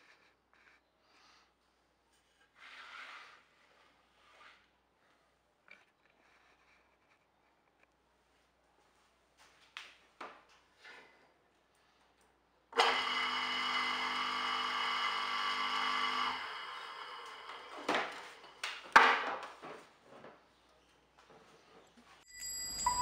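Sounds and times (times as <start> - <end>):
electric motor humming: 12.8 - 18.5.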